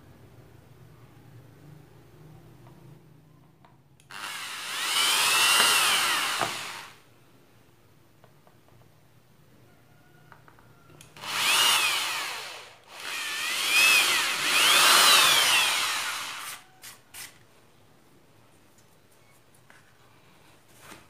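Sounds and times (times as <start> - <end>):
electric drill drilling: 4.1 - 7.0, 11.2 - 16.6.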